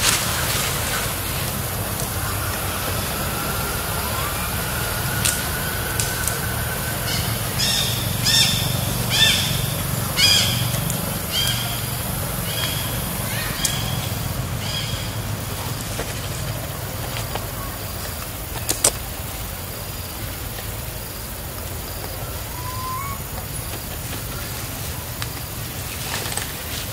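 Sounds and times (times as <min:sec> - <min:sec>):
low engine rumble: 0:00.0 - 0:26.9
short high chirping calls: 0:22.5 - 0:23.2.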